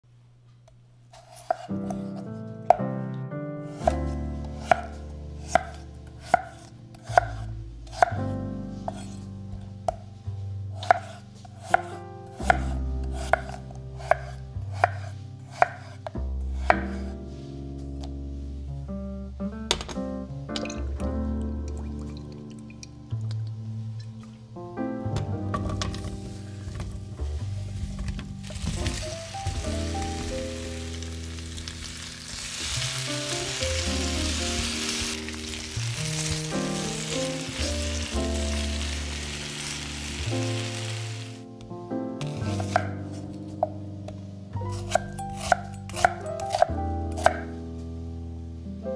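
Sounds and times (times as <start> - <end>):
knife chopping on wooden board: 1.3 - 2.1, 4.6 - 8.2, 10.8 - 16.0, 42.3 - 43.0, 44.8 - 47.5
background music: 1.4 - 48.9
potatoes sizzling in oil: 28.4 - 41.4.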